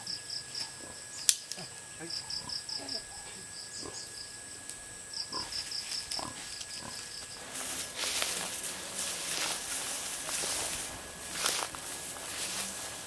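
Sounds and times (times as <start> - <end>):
insect chirping: 0.0 - 13.0
loud rustle: 7.4 - 13.0.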